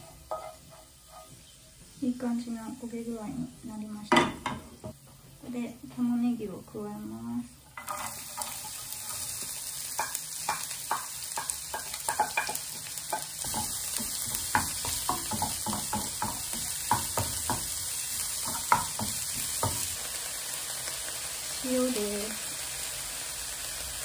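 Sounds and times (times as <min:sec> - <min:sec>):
spatula tapping and scraping pan: 0:00.0 - 0:01.5, 0:07.8 - 0:20.0
onion sizzling in a frying pan: 0:00.0 - 0:24.0.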